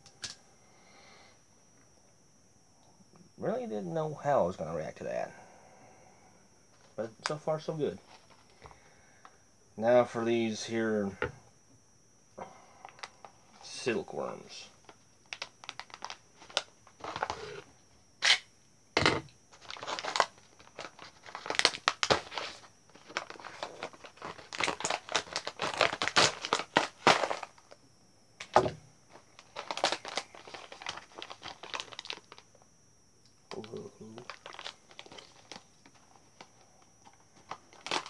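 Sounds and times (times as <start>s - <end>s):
plastic snack bag crinkling: 14.8s - 17.6s, 19.5s - 27.8s, 28.4s - 32.6s, 33.5s - 38.0s.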